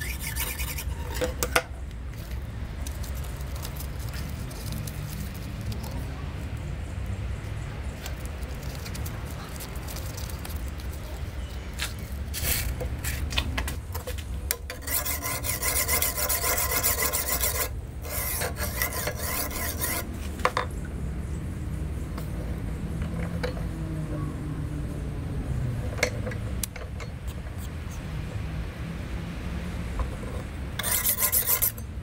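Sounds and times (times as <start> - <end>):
sharpening stone scraping knife: 0.0 - 1.6, 14.0 - 20.1, 26.1 - 28.1, 30.0 - 31.9.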